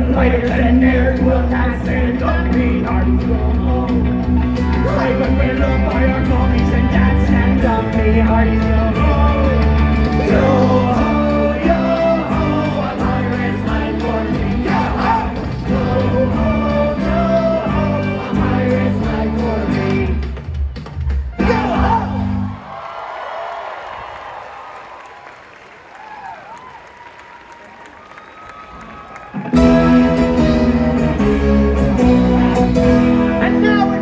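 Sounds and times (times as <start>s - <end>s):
lead singer singing: 0.0s - 20.3s
live rock band playing: 0.0s - 20.6s, 29.5s - 34.0s.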